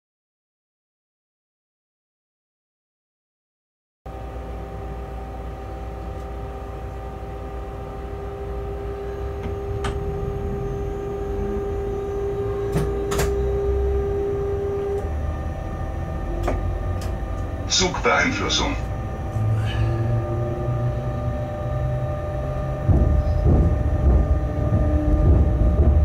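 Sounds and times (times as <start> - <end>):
locomotive machinery humming: 4.1 - 26.0
strong steady whine: 4.1 - 26.0
low rumble: 6.5 - 26.0.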